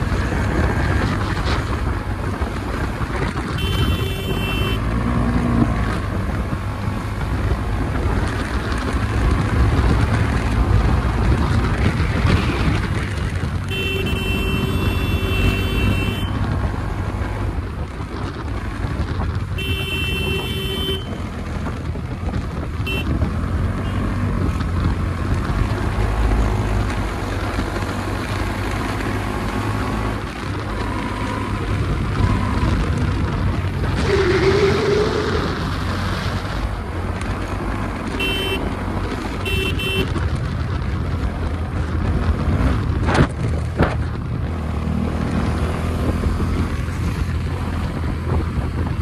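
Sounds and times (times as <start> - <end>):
motorcycle engine: 0.0 - 49.0
wind rumble on microphone: 0.0 - 49.0
vehicle horn honking: 3.6 - 4.9, 13.7 - 16.4, 19.6 - 21.2, 22.8 - 23.2, 38.1 - 38.7, 39.4 - 40.2.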